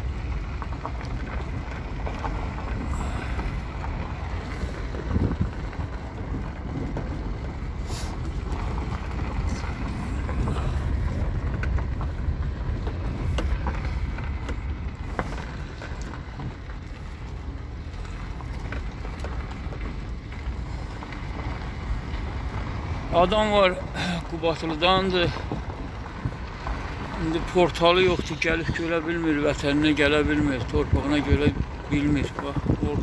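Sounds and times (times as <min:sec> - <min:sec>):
tyre and engine rumble: 0:00.0 - 0:33.0
wind on microphone: 0:01.1 - 0:17.3, 0:30.2 - 0:33.0.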